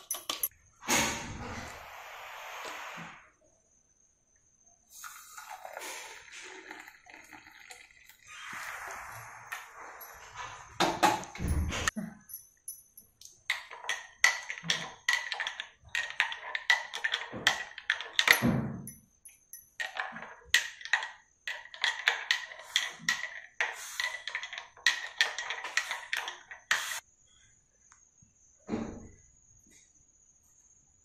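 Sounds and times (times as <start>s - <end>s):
spoon clinking in ceramic mug: 0.0s - 0.5s.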